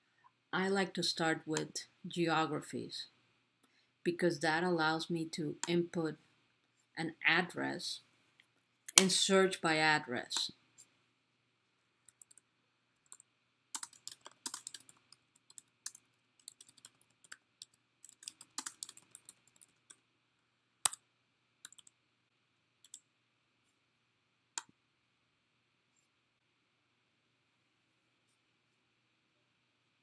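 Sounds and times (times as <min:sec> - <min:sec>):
typing on a keyboard: 0:12.1 - 0:12.4, 0:13.0 - 0:20.0, 0:21.6 - 0:21.9.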